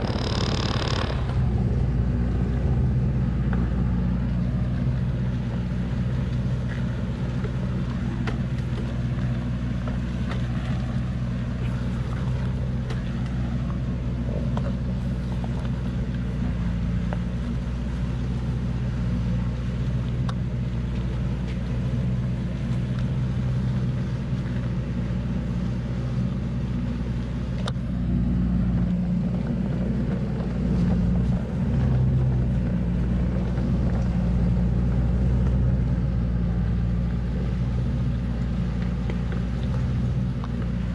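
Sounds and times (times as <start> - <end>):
truck engine running under load: 0.0 - 40.9.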